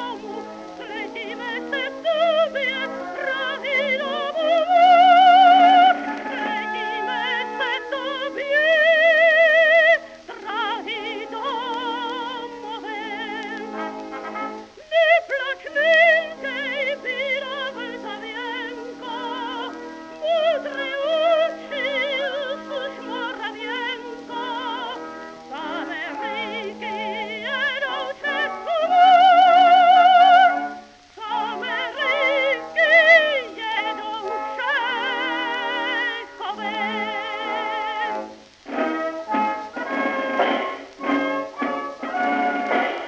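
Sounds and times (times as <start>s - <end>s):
operatic soprano singing: 0.0s - 43.0s
small orchestra playing: 38.1s - 43.0s.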